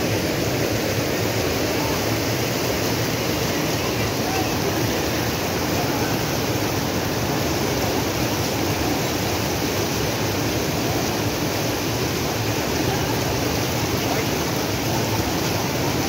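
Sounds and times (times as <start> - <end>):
river rushing over rocks: 0.0 - 16.0.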